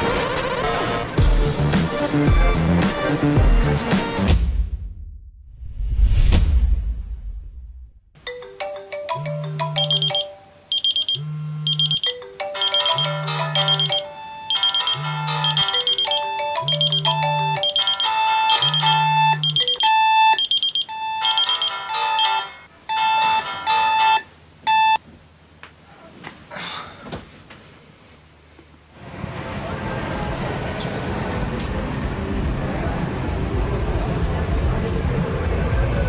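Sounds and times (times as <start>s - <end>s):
electronic alarm melodies: 8.4s - 25.0s
high repeating beeps: 9.2s - 22.3s.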